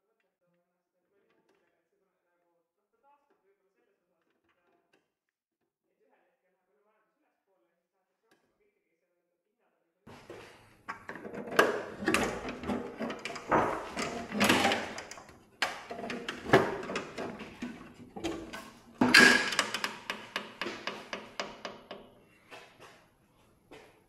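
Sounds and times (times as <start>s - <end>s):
tools and metal parts knocking: 10.9s - 22.2s.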